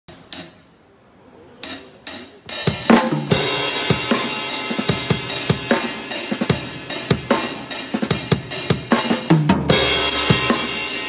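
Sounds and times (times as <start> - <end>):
drum groove: 0.1 - 0.7, 1.6 - 11.0
cymbal hits: 9.7 - 11.0.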